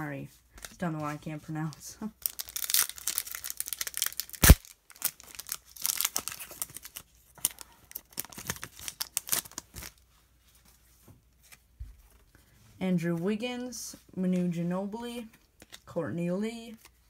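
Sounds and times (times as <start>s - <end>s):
foil pack tearing and crinkling: 2.2s - 10.0s.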